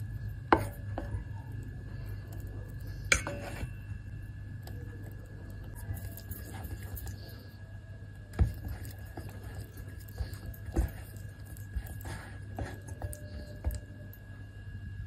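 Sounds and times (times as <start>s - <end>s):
steady low hum: 0.0s - 15.0s
whisk squelching thick mixture: 8.3s - 14.1s.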